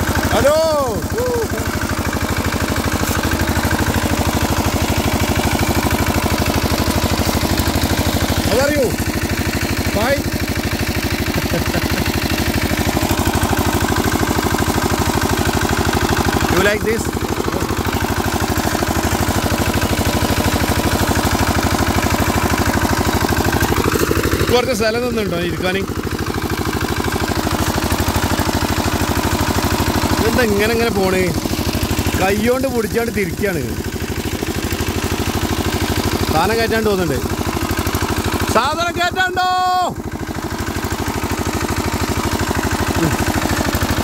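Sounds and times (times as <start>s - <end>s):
diesel tractor engine chugging: 0.0s - 44.0s.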